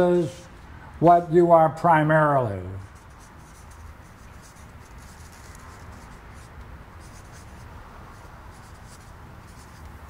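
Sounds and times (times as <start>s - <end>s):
marker writing on paper: 2.8s - 10.0s.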